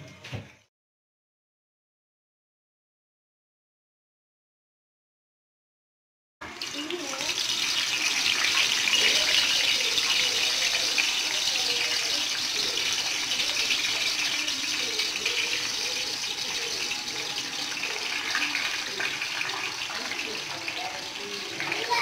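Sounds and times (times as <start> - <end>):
banana slices sizzling in hot oil: 6.4 - 22.0.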